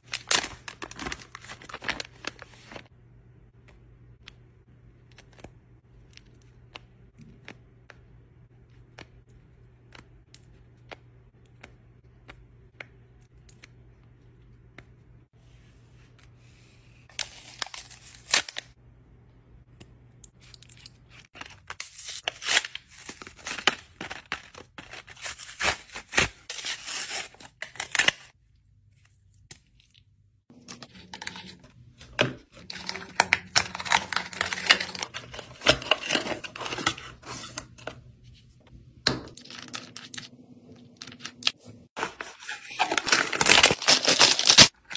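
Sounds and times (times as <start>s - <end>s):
packaging crinkling and tearing: 0.0s - 2.9s, 17.1s - 18.7s, 20.5s - 28.3s, 32.6s - 37.6s, 39.3s - 40.3s, 41.0s - 44.9s.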